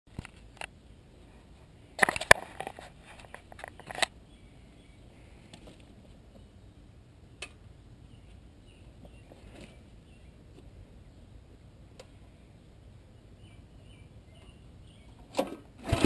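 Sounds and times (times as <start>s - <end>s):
handling rustling and clattering: 2.0s - 4.1s.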